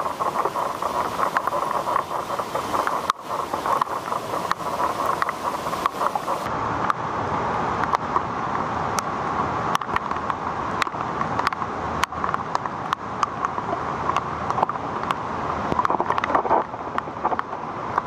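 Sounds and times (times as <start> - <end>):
floodwater running across road: 0.0 - 6.5
steady rain: 0.0 - 18.0.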